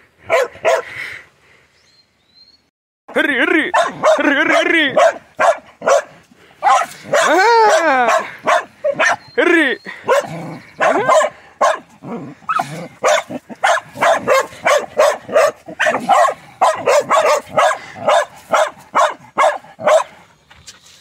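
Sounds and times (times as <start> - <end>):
dogs barking sharply: 0.3 - 0.9, 3.7 - 9.3, 9.9 - 20.2
dogs yelping: 3.7 - 20.1.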